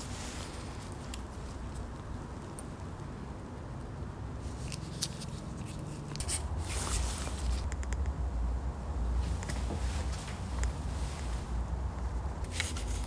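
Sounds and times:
rubber rubbing with clicks and scrapes: 0:04.5 - 0:07.7.

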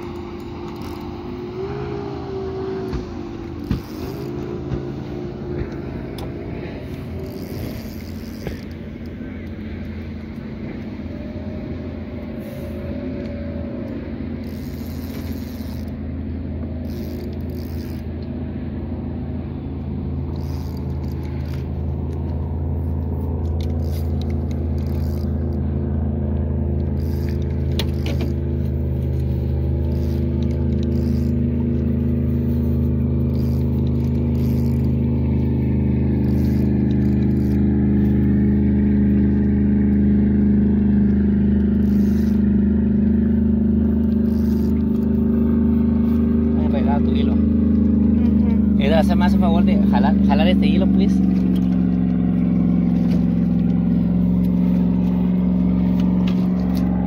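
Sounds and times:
outboard motor running: 0:00.0 - 0:57.0
handling clicks and rustles: 0:19.8 - 0:57.0.

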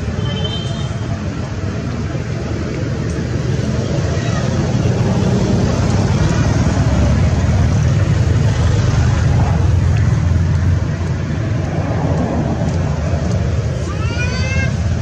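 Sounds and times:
low rumbling noise: 0:01.0 - 0:15.0.

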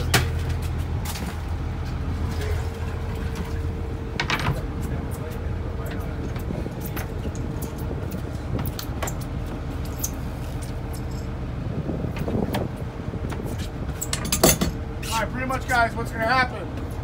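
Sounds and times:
boat engine idling: 0:00.0 - 0:17.0
light clicks and knocks of fishing gear: 0:00.1 - 0:11.4.

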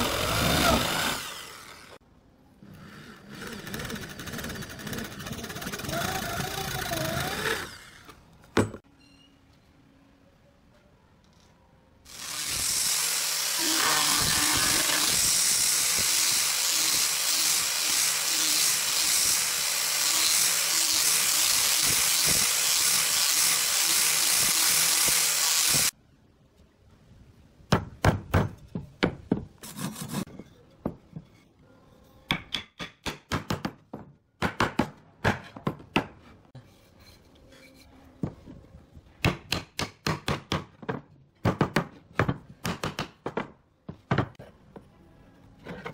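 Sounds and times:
loud power tool: 0:00.0 - 0:02.0, 0:12.1 - 0:25.9.

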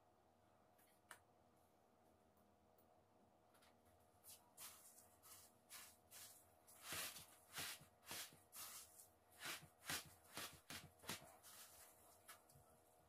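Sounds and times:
breadcrumbs rustling crunchily: 0:04.3 - 0:12.5.

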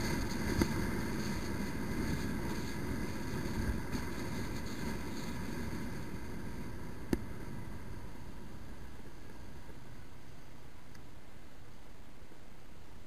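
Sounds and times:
motorcycle wind and road rumble: 0:00.0 - 0:10.1.

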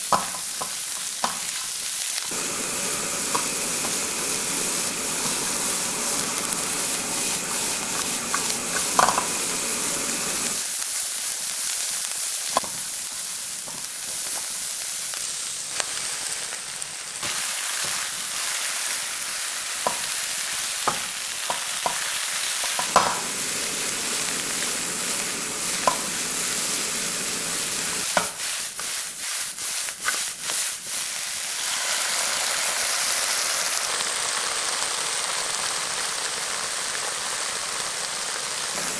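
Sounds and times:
vegetables sizzling in a pan: 0:00.0 - 0:38.9
spatula tapping and scraping pan: 0:02.5 - 0:10.6, 0:20.8 - 0:27.0, 0:28.0 - 0:28.9.

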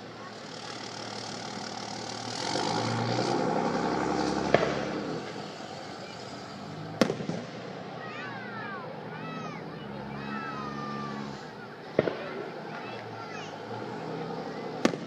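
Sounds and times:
rattle of small firework cracks: 0:07.0 - 0:07.8, 0:11.9 - 0:13.1, 0:14.8 - 0:15.0.

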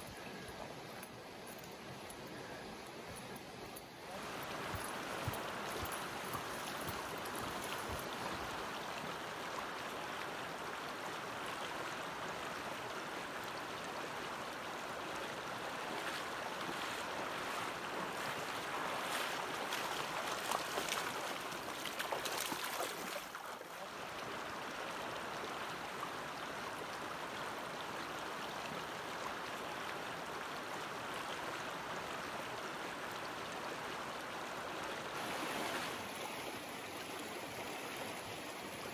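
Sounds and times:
shallow stream rushing over rocks: 0:00.0 - 0:38.9
footsteps wading through water: 0:04.2 - 0:09.6, 0:15.8 - 0:23.8.

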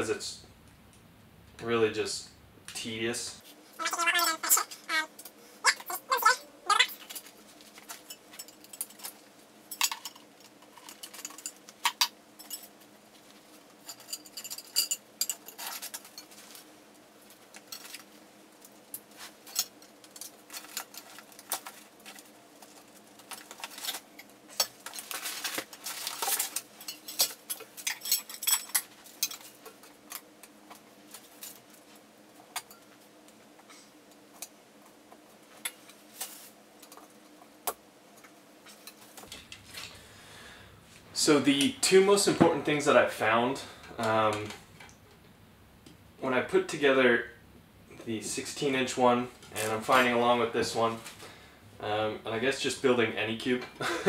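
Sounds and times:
rustling: 0:19.1 - 0:28.2.

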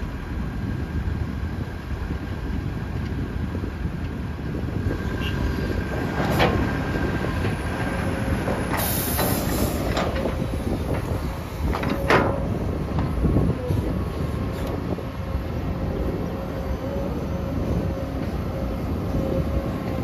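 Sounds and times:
excavator diesel engine: 0:00.1 - 0:20.0
brief hydraulic hiss: 0:08.8 - 0:09.9.

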